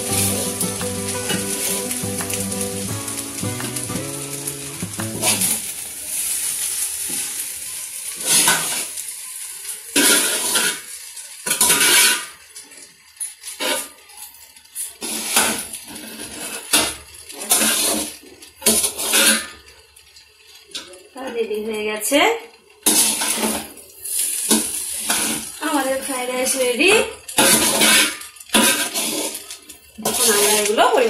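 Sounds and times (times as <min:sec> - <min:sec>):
sizzling in pot: 0:00.0 - 0:31.0.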